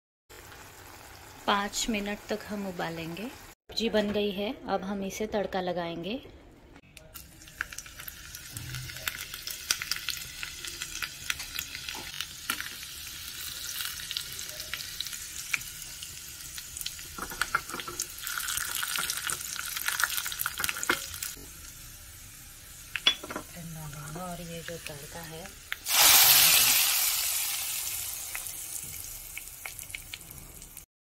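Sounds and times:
hot oil sizzling with sharp pops: 7.2s - 30.9s.

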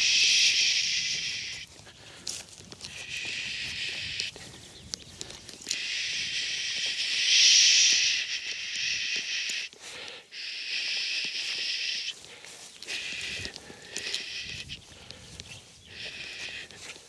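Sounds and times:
man hushing: 0.0s - 1.8s, 5.7s - 12.2s.

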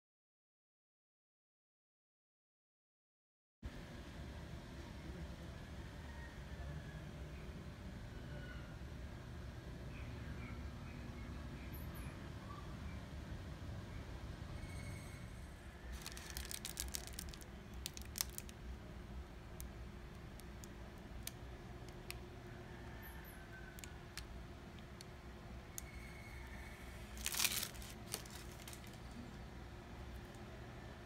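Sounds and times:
faint room hum: 3.6s - 31.0s
crinkling and clicks: 15.9s - 18.6s, 19.5s - 22.4s, 23.1s - 26.0s, 27.2s - 29.4s.

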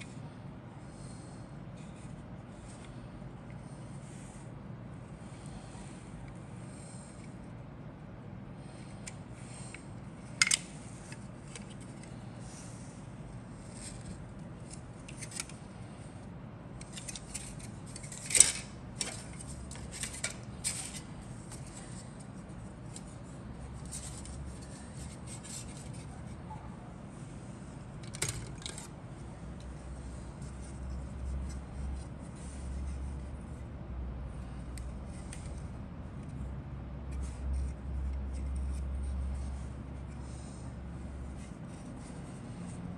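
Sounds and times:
plastic parts clicking and tapping: 10.4s - 12.1s, 28.0s - 28.9s.

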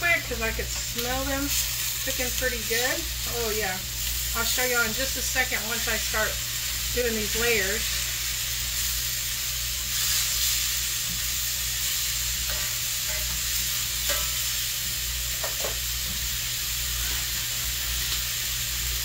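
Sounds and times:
pork chops sizzling in a pan: 0.0s - 19.0s.

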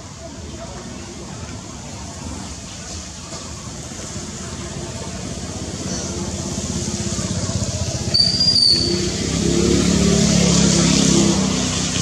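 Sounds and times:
short high-pitched squeak: 8.1s - 9.1s.

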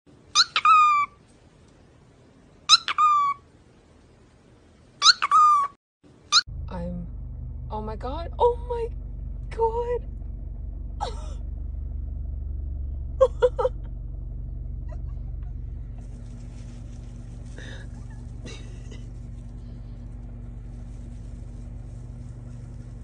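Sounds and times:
car engine idling: 6.5s - 23.0s.

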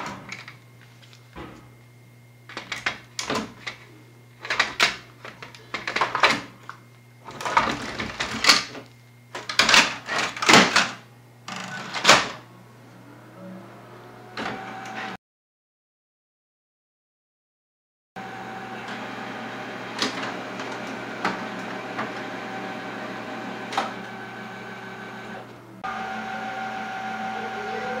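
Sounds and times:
printer door shutting: 0.0s - 0.5s, 2.5s - 3.6s, 9.4s - 11.0s, 11.6s - 12.4s, 14.4s - 15.1s, 19.8s - 22.3s, 23.6s - 24.2s.

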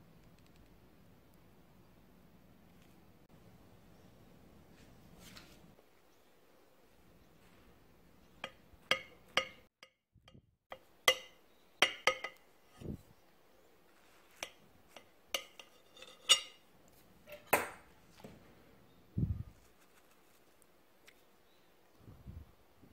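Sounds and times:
knife clinking on ceramic plate: 8.4s - 9.7s, 11.1s - 12.4s, 14.4s - 16.6s.

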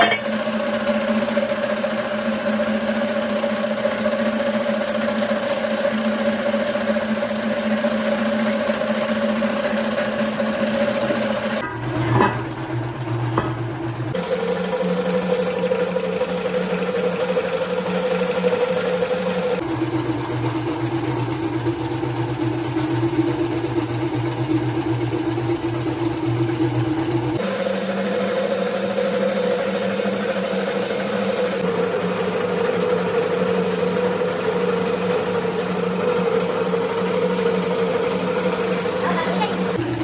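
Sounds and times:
spray gun hissing: 0.0s - 11.6s, 27.4s - 39.8s
machine hum: 0.0s - 40.0s.

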